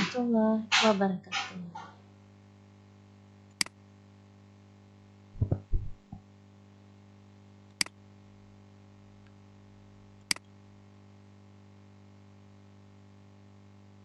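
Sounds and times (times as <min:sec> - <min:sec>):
low electrical hum: 0:00.0 - 0:14.0
computer mouse clicks: 0:03.5 - 0:03.8, 0:07.7 - 0:08.0
low thuds: 0:05.4 - 0:06.2.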